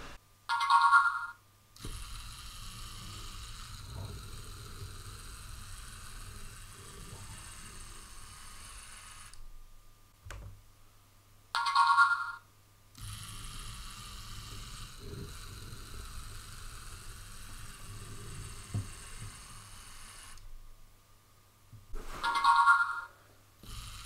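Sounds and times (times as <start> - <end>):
robot motors whirring: 1.8 - 9.4, 13.0 - 20.5, 23.6 - 24.0.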